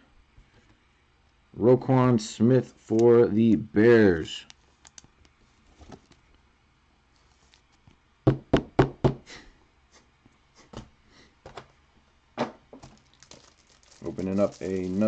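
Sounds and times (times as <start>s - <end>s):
cards clicking: 4.4s - 5.1s.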